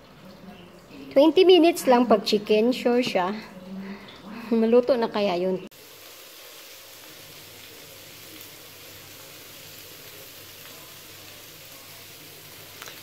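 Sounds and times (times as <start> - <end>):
steady hiss: 5.7 - 13.0.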